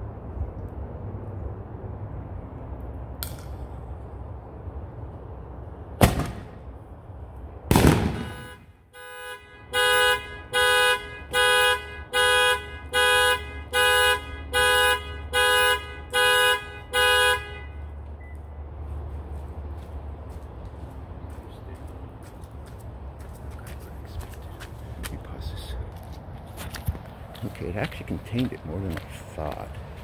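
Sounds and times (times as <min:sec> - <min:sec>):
firework bang: 0:06.0 - 0:06.6, 0:07.7 - 0:08.5
firework blast: 0:06.0 - 0:06.7, 0:07.7 - 0:08.5
car alarm honks: 0:08.1 - 0:18.4.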